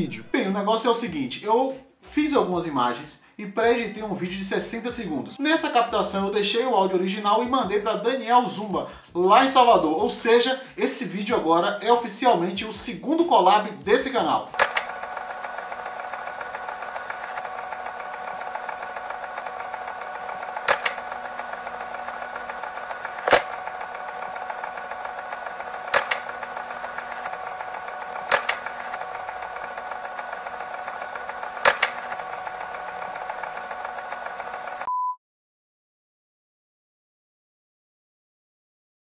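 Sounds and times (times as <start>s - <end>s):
film projector whirring: 13.5s - 34.9s
sharp clicks: 14.5s - 34.9s.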